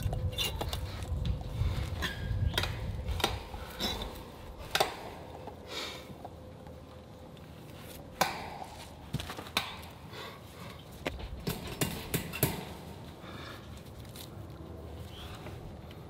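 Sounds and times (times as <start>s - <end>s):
hammer striking wooden post: 8.2s - 8.8s, 11.4s - 12.8s.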